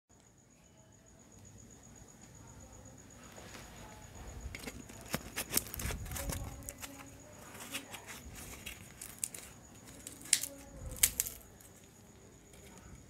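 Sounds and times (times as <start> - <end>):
flatbread crackling and tearing: 4.6 - 13.0.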